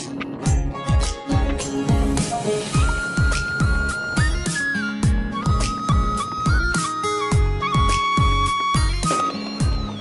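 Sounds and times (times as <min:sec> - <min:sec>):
music with steady beat: 0:00.3 - 0:10.0
held melody bending between notes: 0:02.3 - 0:10.0.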